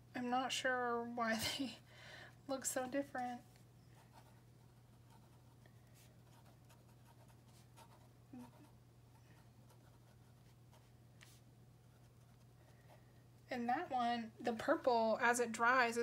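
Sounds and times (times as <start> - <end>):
pen nib scratching paper: 4.0 - 12.5.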